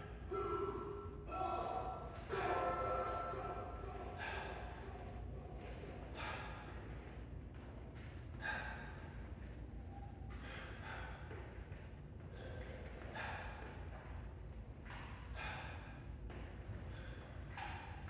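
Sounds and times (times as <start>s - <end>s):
low steady hum: 0.0s - 18.0s
man breathing hard: 4.0s - 5.2s, 6.0s - 7.2s, 8.3s - 14.1s, 15.3s - 17.9s
sharp exhales: 4.1s - 4.8s, 15.3s - 16.1s.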